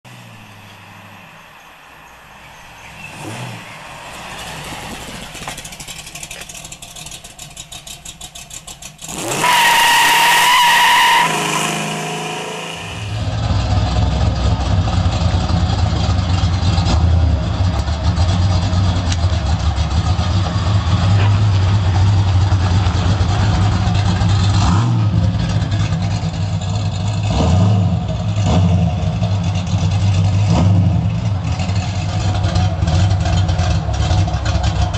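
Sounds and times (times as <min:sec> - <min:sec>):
car driving past: 0:00.1 - 0:06.9, 0:11.1 - 0:14.0
car engine idling with uneven rumble: 0:00.1 - 0:09.1, 0:13.1 - 0:27.3, 0:27.9 - 0:34.9.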